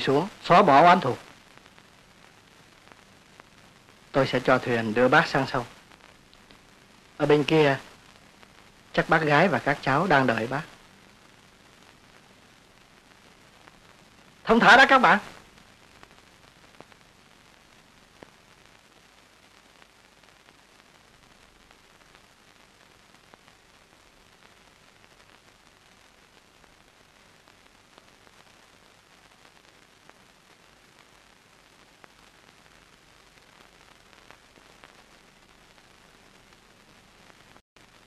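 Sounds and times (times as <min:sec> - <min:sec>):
old film soundtrack hiss: 0:00.0 - 0:38.0
faint clicks: 0:05.9 - 0:06.7.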